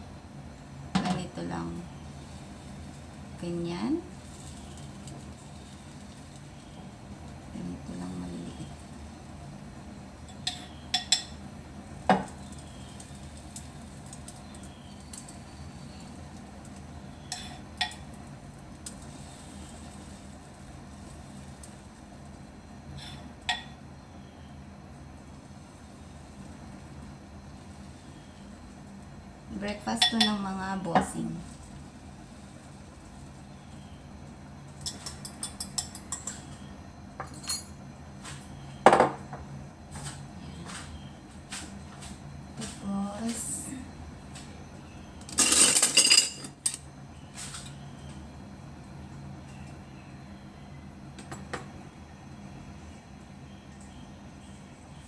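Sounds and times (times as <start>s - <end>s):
pancakes sizzling in butter: 1.9s - 36.7s
spoon clinking against glass bowl: 30.0s - 30.4s.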